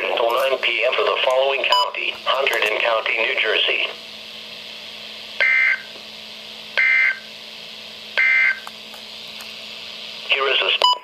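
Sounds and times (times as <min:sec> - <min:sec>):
weather radio data warble: 0:00.0 - 0:04.0, 0:10.2 - 0:11.0.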